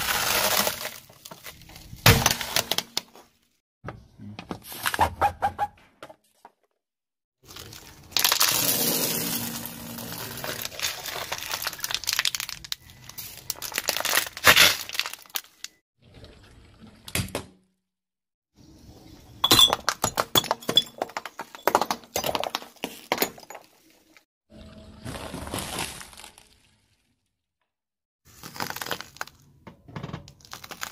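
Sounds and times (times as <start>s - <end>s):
tyre crushing plastic bottles: 0.0s - 3.2s, 7.5s - 12.8s, 13.4s - 15.6s, 19.4s - 23.8s
ceramic object shattering: 19.4s - 23.8s.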